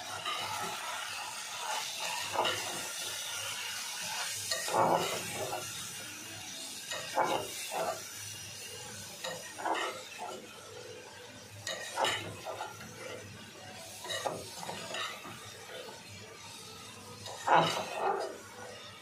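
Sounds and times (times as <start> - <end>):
beans frying: 0.0 - 19.0
metal spatula scraping pot: 9.2 - 10.4, 17.2 - 18.5.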